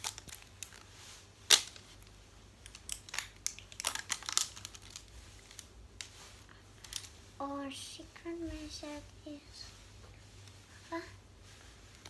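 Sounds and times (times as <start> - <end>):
plastic wrapping crinkling: 0.0 - 7.2.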